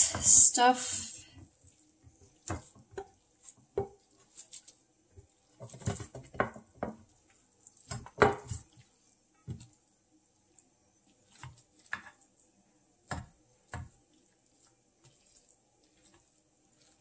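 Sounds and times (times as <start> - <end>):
spatula scraping a frying pan: 1.4 - 9.7, 14.0 - 17.0.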